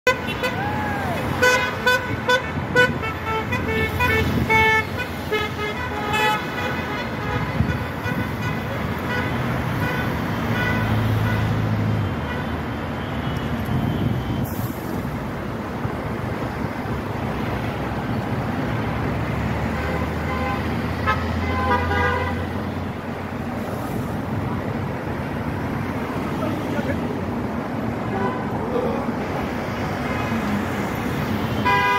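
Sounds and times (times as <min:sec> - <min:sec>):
car horns tooting: 0:00.0 - 0:11.6, 0:19.7 - 0:22.6, 0:31.6 - 0:31.9
heavy vehicles rumbling past: 0:00.0 - 0:31.9
road traffic: 0:00.0 - 0:31.9.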